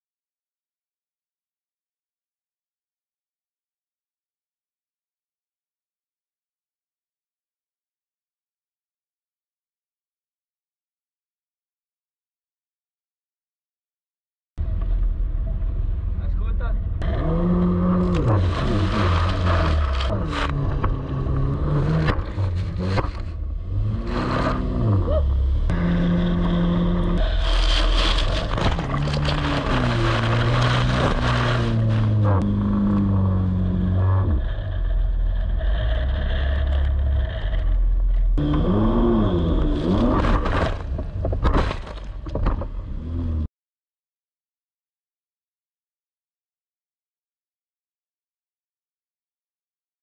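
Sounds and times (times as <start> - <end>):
jet ski engine revving: 17.0 - 23.1, 23.7 - 40.3.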